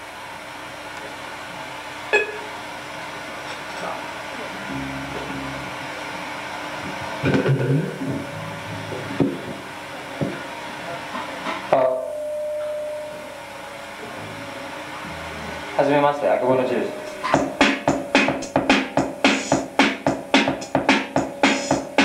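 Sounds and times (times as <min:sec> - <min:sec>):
sound system hum and hiss: 0:00.0 - 0:22.0
single held tone: 0:02.1 - 0:02.5, 0:11.8 - 0:15.8, 0:16.4 - 0:18.2.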